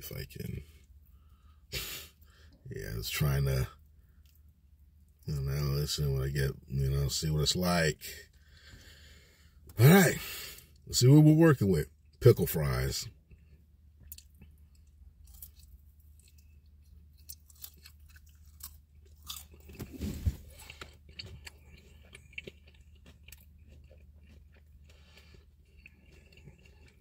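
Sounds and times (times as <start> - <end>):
person chewing crispy food: 13.2 - 27.0.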